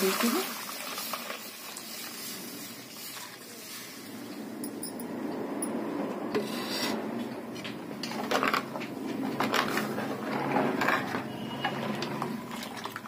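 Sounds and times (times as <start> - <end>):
batter being poured: 0.0 - 4.9.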